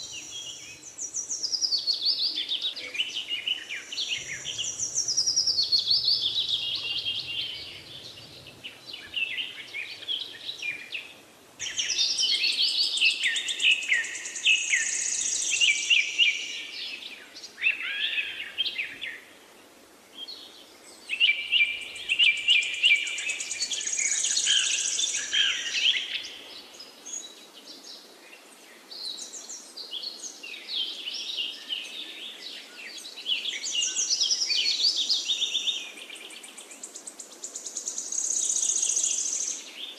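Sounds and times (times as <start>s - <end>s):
birds chirping and singing: 0.0s - 11.0s.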